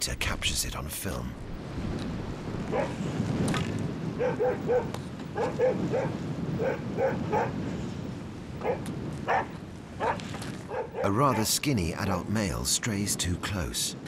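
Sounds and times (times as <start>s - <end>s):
dog barking: 2.7s - 3.0s, 4.2s - 7.6s, 8.6s - 11.4s.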